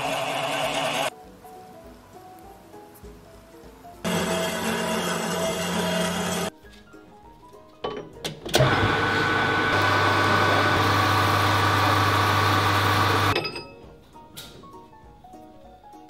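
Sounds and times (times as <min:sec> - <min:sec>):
machine tools cutting steel: 0:00.0 - 0:01.1, 0:04.1 - 0:06.5, 0:08.6 - 0:13.6.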